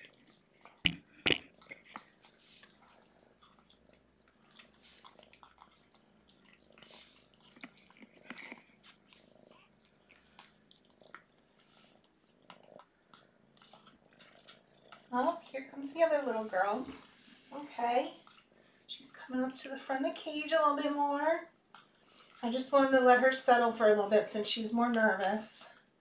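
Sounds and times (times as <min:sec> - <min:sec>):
kittens chewing wet food: 0:00.0 - 0:17.5, 0:18.1 - 0:18.9, 0:21.4 - 0:22.8, 0:25.7 - 0:26.0
kitten purring: 0:00.0 - 0:18.5.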